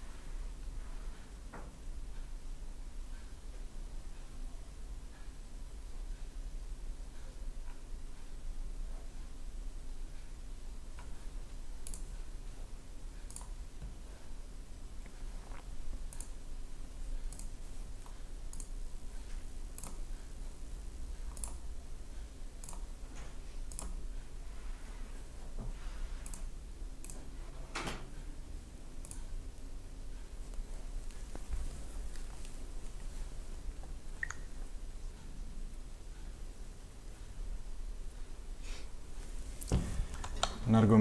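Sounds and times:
low steady hum: 0.0 - 41.0
computer mouse clicks: 11.8 - 12.2, 13.2 - 13.6, 16.0 - 16.4, 17.2 - 20.1, 21.2 - 21.6, 22.6 - 22.9, 23.6 - 24.0, 26.2 - 27.3, 29.0 - 29.3.

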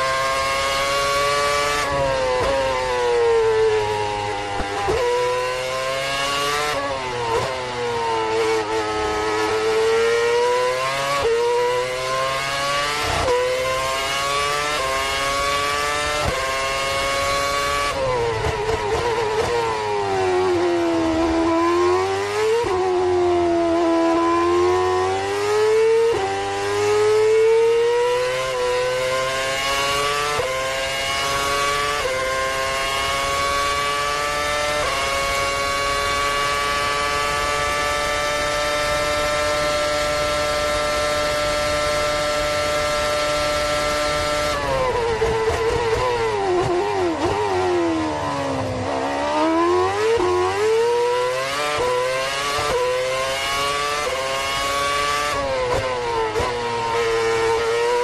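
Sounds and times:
racing car engine at speed: 0.0 - 58.0.

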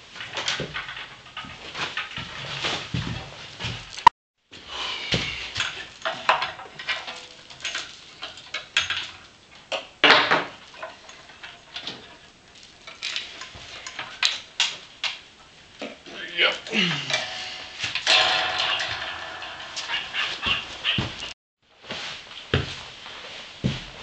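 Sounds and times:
metal hardware clinking: 16.9 - 21.3.

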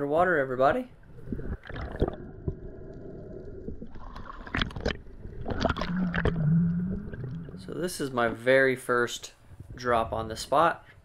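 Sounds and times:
muffled underwater water rumble: 0.9 - 8.1.

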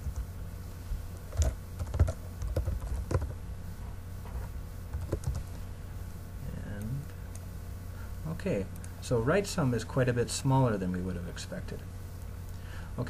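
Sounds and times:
computer keyboard keystrokes: 1.3 - 3.3, 4.9 - 5.5.

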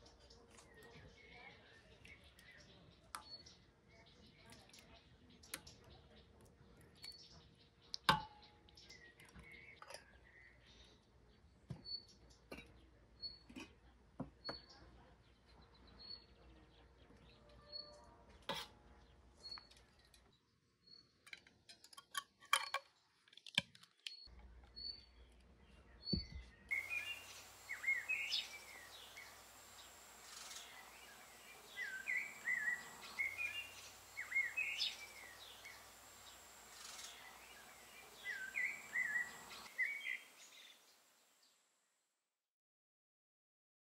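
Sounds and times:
sweeping birdsong: 0.0 - 13.5, 24.1 - 41.6
high short bird chirp: 26.2 - 40.9
steady hiss: 26.7 - 41.5.

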